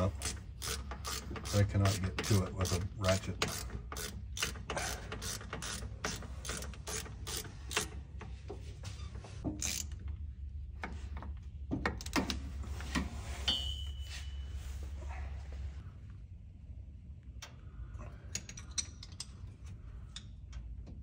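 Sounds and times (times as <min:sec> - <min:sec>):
steady low hum: 0:00.0 - 0:21.0
ratchet clicking: 0:00.1 - 0:08.0, 0:09.6 - 0:10.0.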